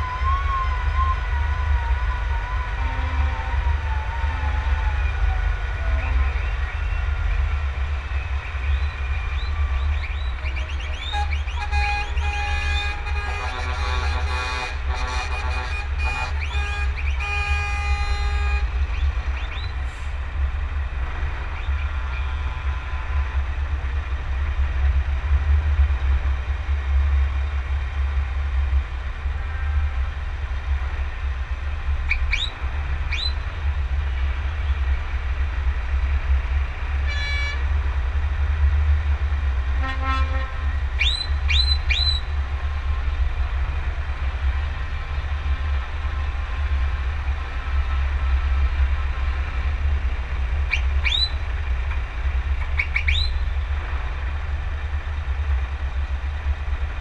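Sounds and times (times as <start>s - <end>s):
truck engine rumble: 0.0s - 57.0s
truck horn toots: 11.0s - 18.8s, 37.0s - 37.7s, 39.8s - 40.7s.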